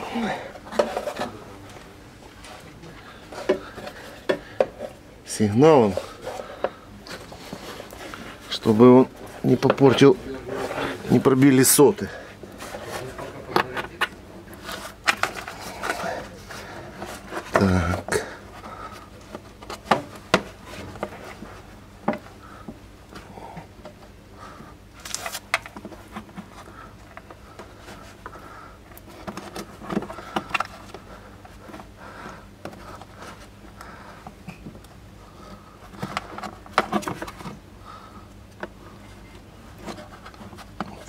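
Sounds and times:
clicks and scrapes of plastic parts: 0:13.5 - 0:16.1, 0:25.0 - 0:31.9, 0:35.8 - 0:37.6.

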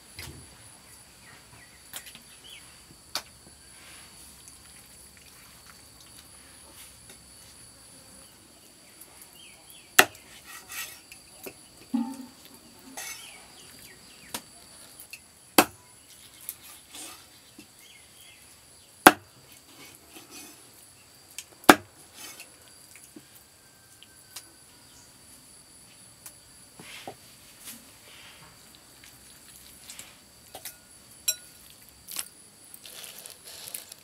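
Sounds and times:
cleaver chopping fish on wood: 0:10.0 - 0:10.2, 0:15.6 - 0:15.8, 0:21.7 - 0:21.9
knife knocks and scrapes: 0:11.9 - 0:13.3.

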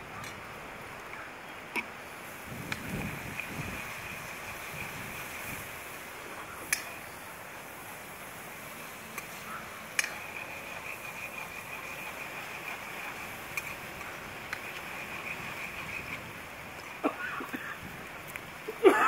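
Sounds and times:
onions sizzling in oil: 0:02.2 - 0:06.1
crackling clicks: 0:06.7 - 0:07.0, 0:09.1 - 0:17.0.

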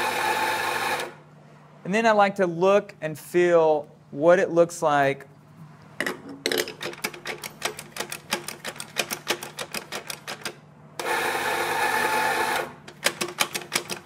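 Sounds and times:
grinder motor grinding beans: 0:00.0 - 0:01.2, 0:11.0 - 0:12.8.

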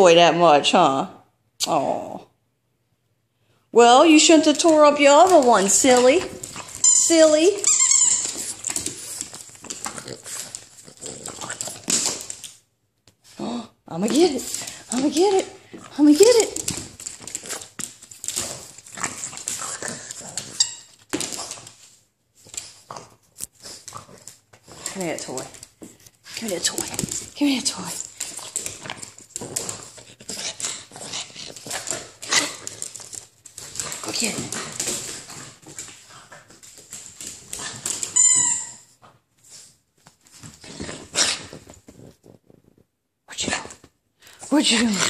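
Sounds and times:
dog claws clicking on wood floor: 0:04.1 - 0:13.2, 0:14.0 - 0:38.6
small dog playing scuffles: 0:05.2 - 0:12.5
dog toy squeak: 0:06.8 - 0:08.6, 0:38.1 - 0:38.9.

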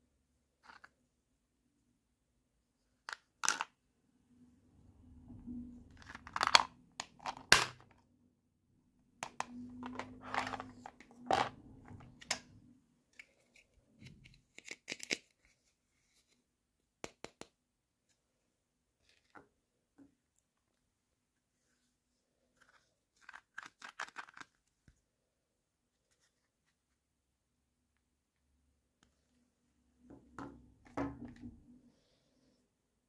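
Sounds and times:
plastic toy pieces clicking: 0:23.2 - 0:24.6.

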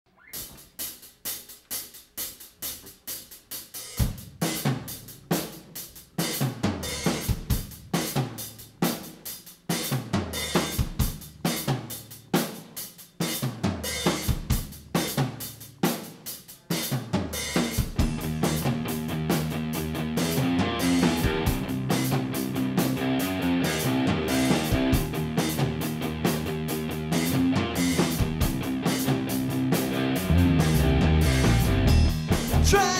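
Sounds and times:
drums: 0:00.1 - 0:32.9
bass guitar: 0:17.8 - 0:32.9
electric guitars: 0:18.0 - 0:32.9.

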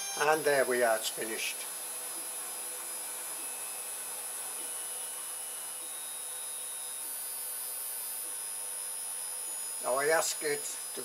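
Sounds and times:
cooling fans whirring: 0:00.0 - 0:11.0
faint high electrical whine: 0:00.0 - 0:11.0.

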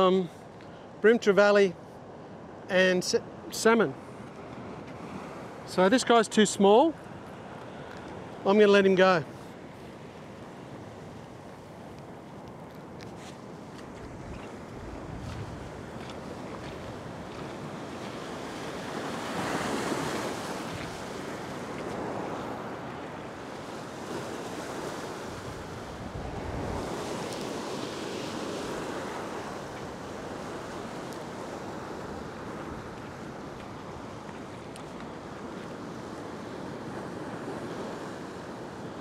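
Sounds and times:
ocean surf breaking on rocks: 0:02.4 - 0:39.0
wind on microphone: 0:13.6 - 0:38.2.

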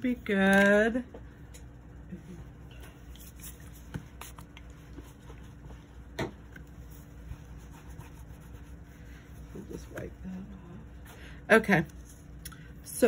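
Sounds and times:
low room hum: 0:00.0 - 0:13.0
cloth wiping a mat: 0:06.6 - 0:10.1.

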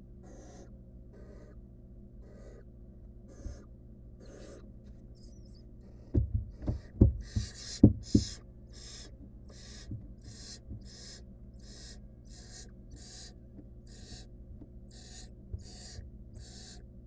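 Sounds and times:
owl nestlings hissing begging calls: 0:00.2 - 0:01.6, 0:02.2 - 0:02.7, 0:03.3 - 0:06.2, 0:06.8 - 0:14.3, 0:14.9 - 0:16.8
thumps against wooden nest box: 0:06.0 - 0:08.4.

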